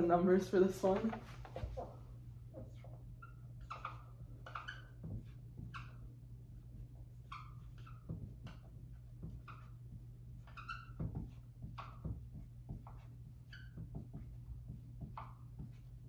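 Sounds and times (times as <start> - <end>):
marker squeaking on whiteboard: 1.0 - 16.0.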